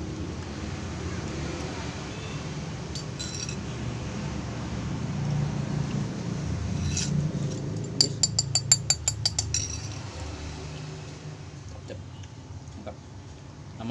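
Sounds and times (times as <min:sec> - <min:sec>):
metal spoon clinking against bowl: 0:02.9 - 0:03.6, 0:07.8 - 0:10.0.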